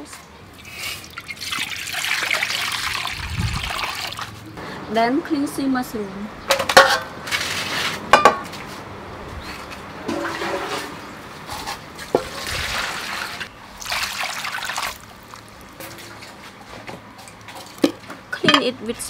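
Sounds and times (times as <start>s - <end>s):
water pouring into metal basin: 0.6s - 4.3s, 12.4s - 15.6s.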